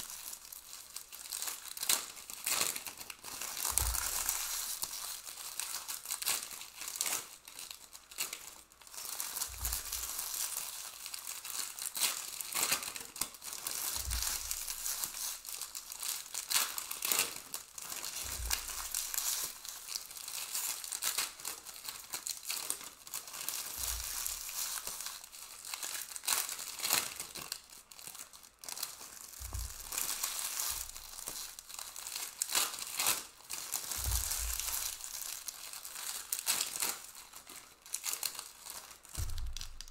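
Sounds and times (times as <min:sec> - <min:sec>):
foil packs crinkling: 0:00.0 - 0:39.9
low thump: 0:03.7 - 0:04.2, 0:34.0 - 0:34.8, 0:39.2 - 0:39.9.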